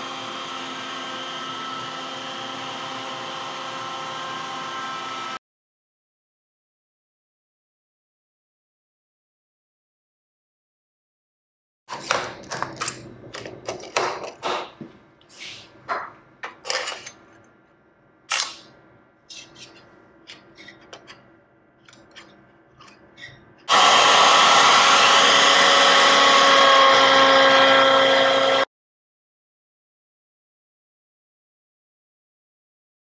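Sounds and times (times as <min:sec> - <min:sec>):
wood router running: 0:00.0 - 0:05.4, 0:23.7 - 0:28.7.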